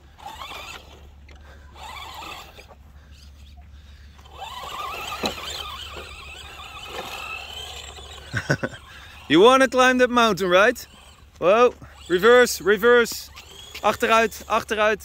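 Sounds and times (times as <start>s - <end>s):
toy truck electric motor whining: 0.0s - 15.0s.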